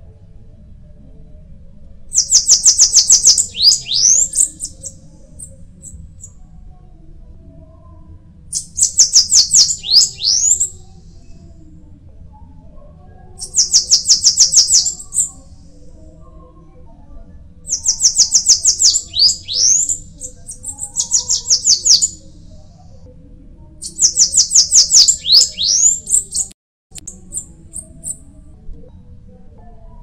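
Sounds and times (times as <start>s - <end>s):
bird singing rapid high notes: 2.1s - 4.9s, 8.6s - 10.7s, 13.4s - 15.3s, 17.7s - 22.2s, 23.8s - 26.5s.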